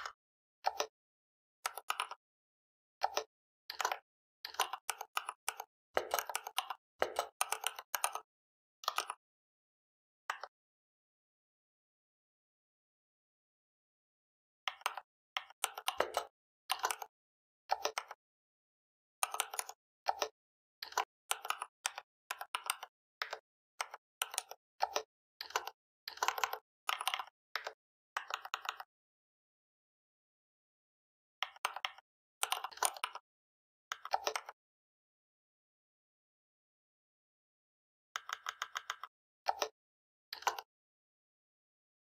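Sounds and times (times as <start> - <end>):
typing on computer keyboard: 1.7 - 2.2, 3.0 - 9.2, 14.7 - 17.1, 17.7 - 18.2, 19.2 - 28.9, 31.4 - 33.2, 33.9 - 34.6, 38.2 - 40.7.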